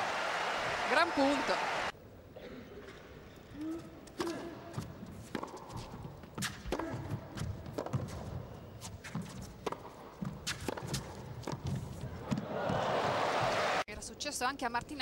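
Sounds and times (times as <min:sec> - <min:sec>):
tennis racket hitting ball: 0:04.2 - 0:12.8
tennis ball bouncing: 0:04.7 - 0:13.5.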